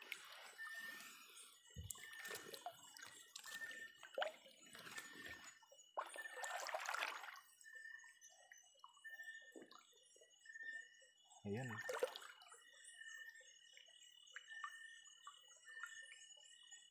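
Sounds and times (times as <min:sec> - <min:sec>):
river water sloshing and splashing: 0:01.8 - 0:07.5.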